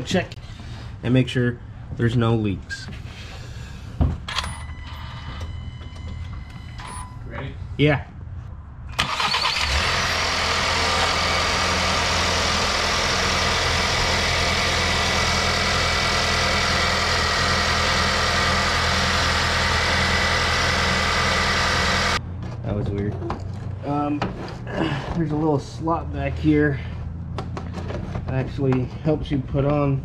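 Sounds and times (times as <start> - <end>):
car engine starting and idling: 8.9 - 22.2.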